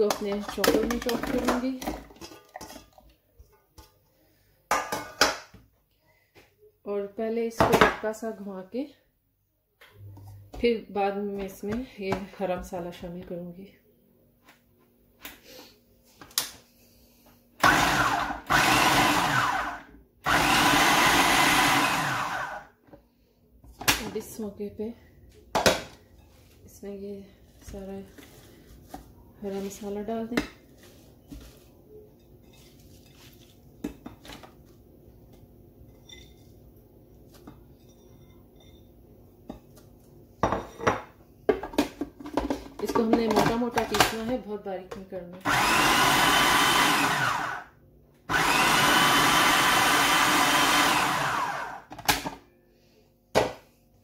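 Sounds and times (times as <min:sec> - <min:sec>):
food chopper motor: 0:17.6 - 0:22.7, 0:45.4 - 0:47.7, 0:48.3 - 0:51.9.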